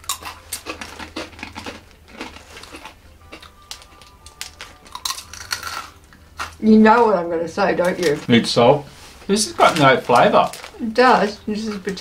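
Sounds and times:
plastic crisp packet crinkling: 0.0s - 6.6s, 9.3s - 12.0s
crunching on crisps: 0.0s - 7.1s, 9.4s - 12.0s.

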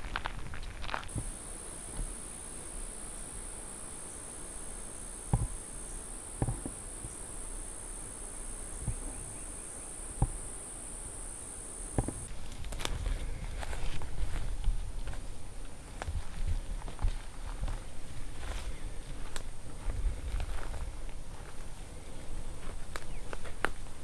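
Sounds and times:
footsteps through dry brush: 0.0s - 1.2s, 12.2s - 24.0s
high-pitched insect drone: 1.1s - 12.3s.

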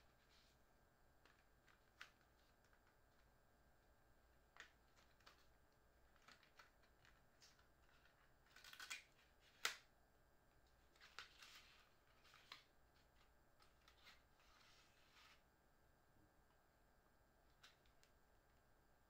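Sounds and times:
paper packaging rustling: 4.5s - 9.8s, 10.8s - 15.4s.

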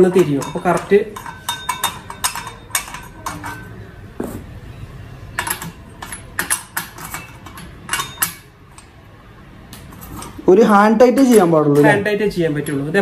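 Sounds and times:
metal clicks and clinks: 0.1s - 3.8s, 5.4s - 8.9s.

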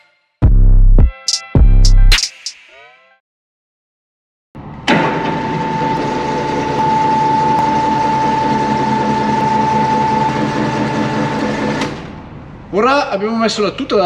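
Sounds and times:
car lift motor clunk: 4.6s - 12.2s
electric motor whining: 5.5s - 11.9s.

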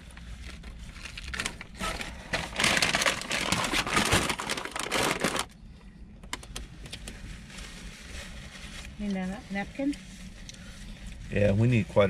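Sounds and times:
paper bag crinkling: 0.0s - 5.5s.

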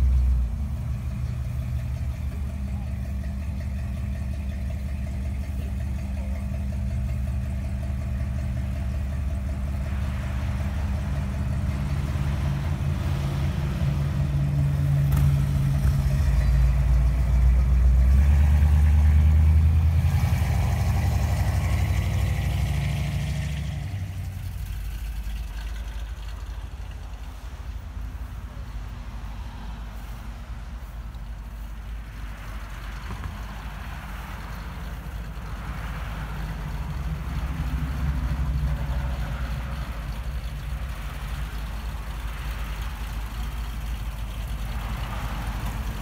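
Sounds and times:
car engine idling: 0.0s - 46.0s.

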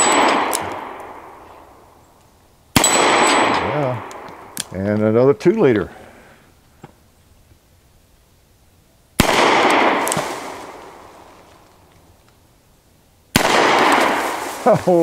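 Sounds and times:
revolver shots echoing: 0.0s - 1.4s, 2.8s - 4.7s, 9.2s - 11.0s, 13.3s - 14.6s.

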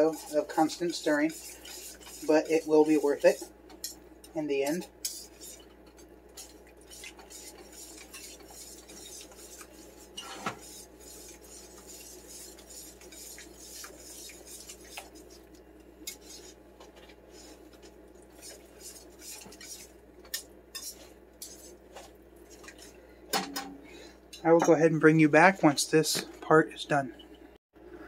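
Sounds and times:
whisk clinking against metal pan: 0.0s - 15.2s, 18.4s - 21.7s
whisk scraping a pan: 0.0s - 23.0s.

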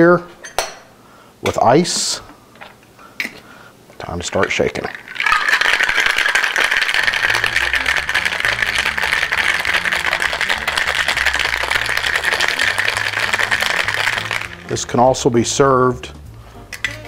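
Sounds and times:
ice rattling in cocktail shaker: 4.4s - 15.0s.

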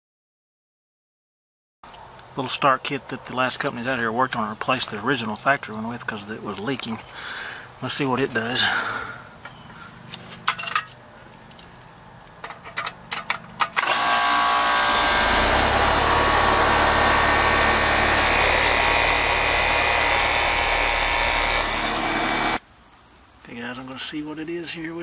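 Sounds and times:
fan rushing: 13.8s - 22.6s
compressor low hum: 13.9s - 22.6s.

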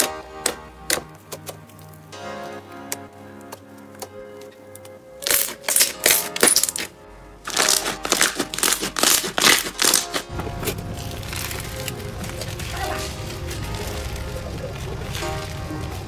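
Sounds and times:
soft background music: 0.0s - 16.0s
slime crackling and popping: 2.9s - 16.0s
foam slime crunchy crackle: 4.8s - 16.0s.

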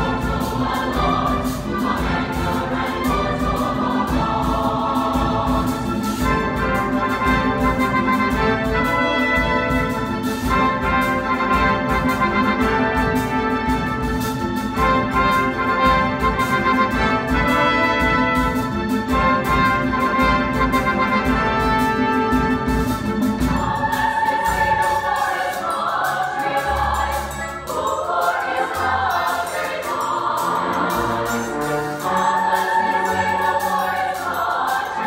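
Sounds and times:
drum beat: 0.0s - 25.5s
trumpets and trombones playing: 6.0s - 25.2s, 30.2s - 33.9s.

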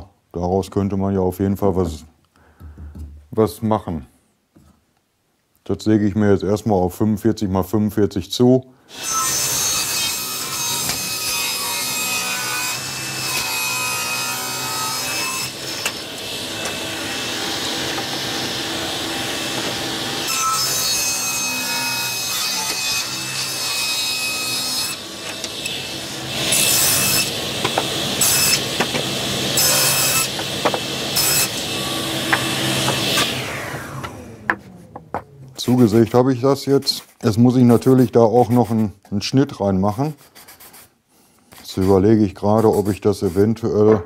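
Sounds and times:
table saw cutting wood: 8.9s - 37.0s.

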